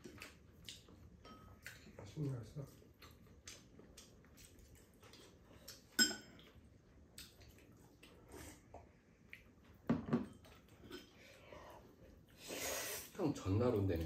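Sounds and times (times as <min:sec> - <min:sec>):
eating sounds: 0:00.0 - 0:09.8
chopsticks clinking on ceramic bowls: 0:01.2 - 0:01.7, 0:05.9 - 0:06.5.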